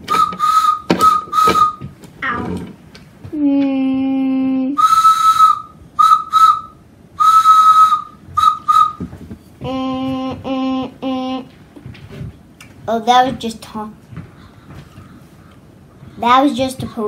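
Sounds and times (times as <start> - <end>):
breathy high whistle toots: 0.0 - 1.9, 4.7 - 9.1
steady low whistle tone: 0.0 - 1.9, 4.8 - 9.1.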